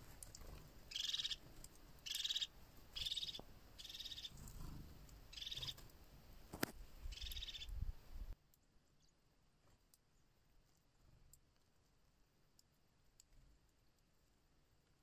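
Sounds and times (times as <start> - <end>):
bird rolling trill call: 0.9 - 1.4, 2.0 - 5.8.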